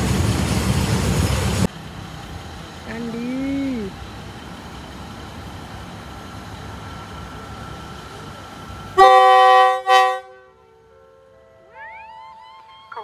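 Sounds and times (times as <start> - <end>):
diesel railcar rumbling: 0.0 - 13.0
train air horn chord: 9.0 - 11.7.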